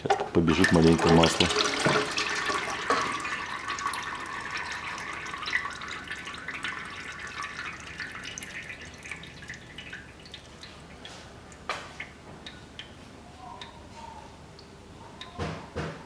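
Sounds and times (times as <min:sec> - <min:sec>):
fluid dripping into metal pan: 0:00.4 - 0:13.0.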